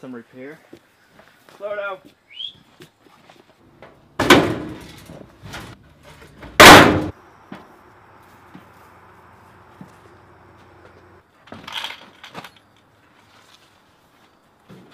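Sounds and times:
sheet metal box clanging: 4.2s - 5.8s, 6.4s - 7.1s.

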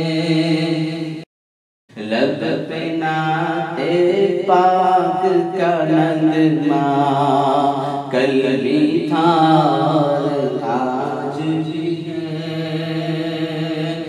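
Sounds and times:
man singing: 0.0s - 1.2s, 1.9s - 14.0s.

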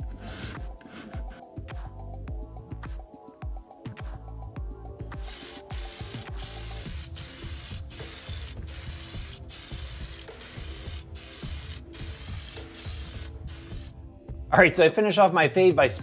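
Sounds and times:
spray-paint can hissing: 5.0s - 14.1s.

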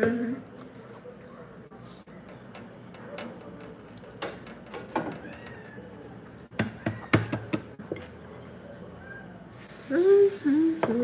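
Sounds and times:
kitchen items knocking and clattering: 6.5s - 8.2s.

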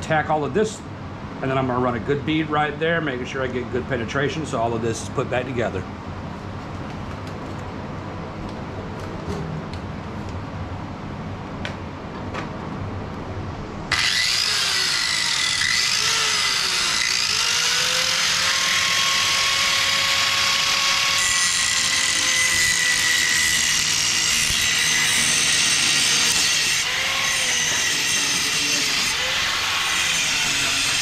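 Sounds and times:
angle grinder grinding steel: 13.9s - 31.0s.

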